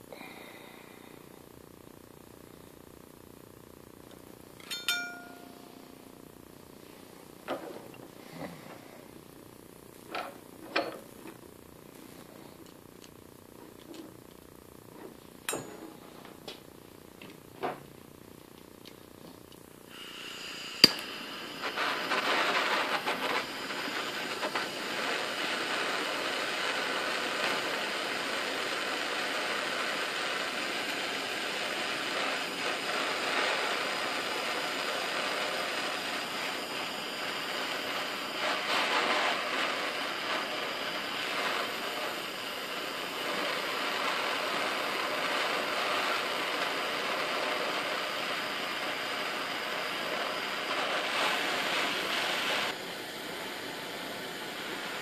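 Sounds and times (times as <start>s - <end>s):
torch flame hissing: 6.2s - 17.9s, 19.1s - 55.0s
torch igniter click: 18.8s - 26.7s.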